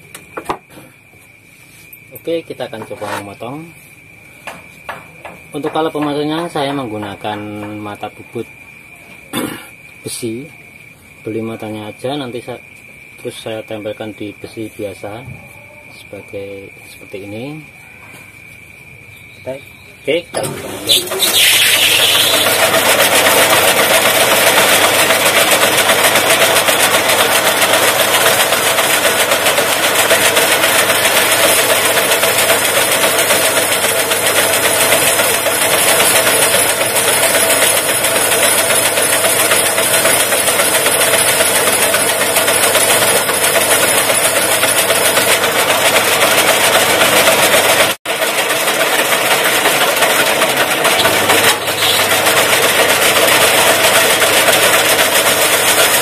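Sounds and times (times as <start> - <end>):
metal grinding scrape on bandsaw: 2.9 - 3.4, 20.4 - 24.8, 33.1 - 56.0.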